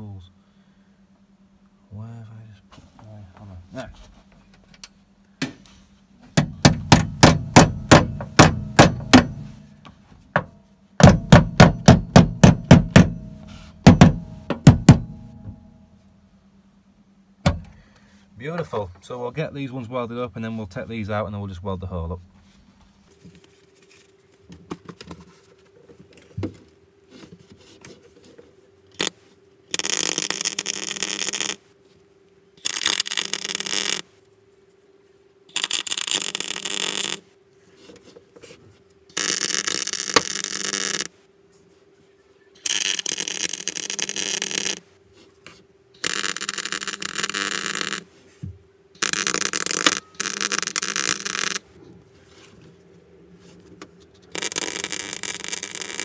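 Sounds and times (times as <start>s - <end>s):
faint steady hum: 0.0s - 56.0s
welder arc crackle: 29.7s - 31.6s, 32.6s - 34.0s, 35.5s - 37.2s, 39.2s - 41.1s, 42.6s - 44.8s, 46.0s - 48.1s, 49.0s - 51.7s, 54.3s - 56.0s.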